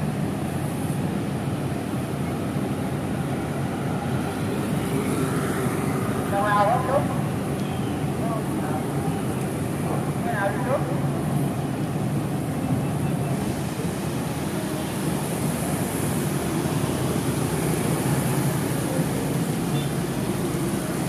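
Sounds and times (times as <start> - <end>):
rain hiss: 0.0 - 21.0
vehicle engines running: 0.0 - 21.0
wet tyres hissing: 11.2 - 21.0.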